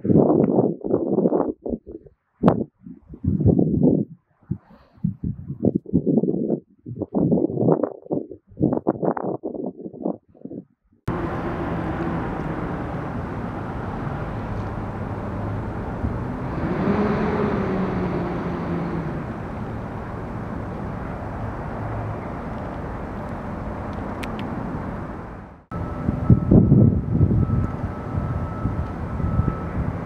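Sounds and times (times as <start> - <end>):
engine running and revving: 11.1 - 25.0.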